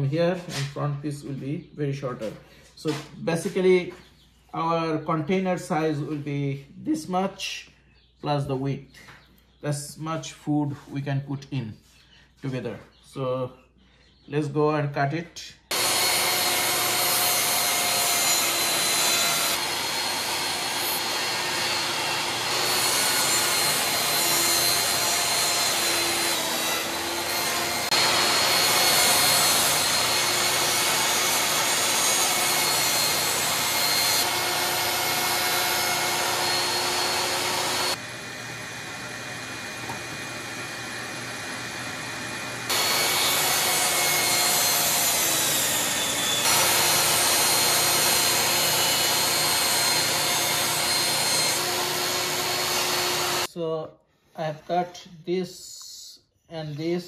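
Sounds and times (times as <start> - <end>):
saw blade rasping through plywood: 15.7 - 53.5
table saw motor whine: 15.7 - 53.5.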